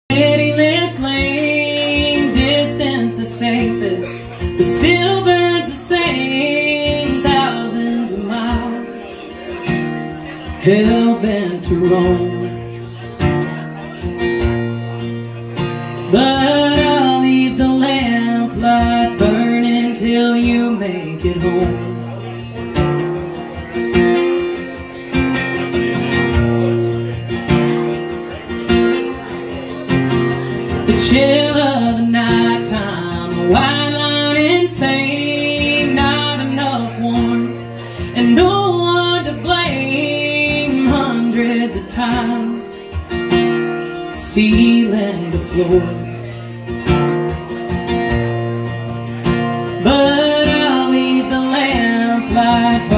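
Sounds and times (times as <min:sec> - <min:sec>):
acoustic guitar: 0:00.0 - 0:52.9
woman singing into a microphone: 0:00.1 - 0:09.4, 0:10.4 - 0:12.8, 0:16.0 - 0:22.2, 0:30.7 - 0:46.4, 0:49.5 - 0:52.9.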